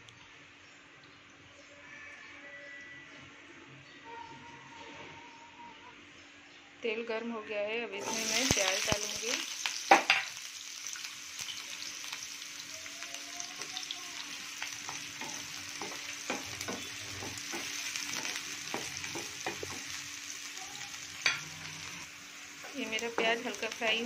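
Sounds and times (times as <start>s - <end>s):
onions sizzling in oil: 7.9s - 24.0s.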